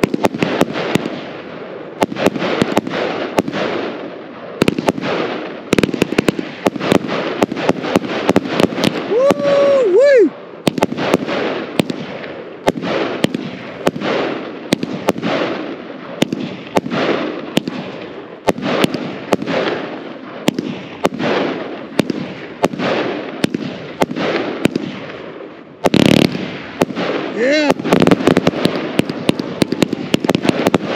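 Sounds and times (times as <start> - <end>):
firework bursts overhead: 0.0 - 30.9
firework shots launching: 0.0 - 30.9.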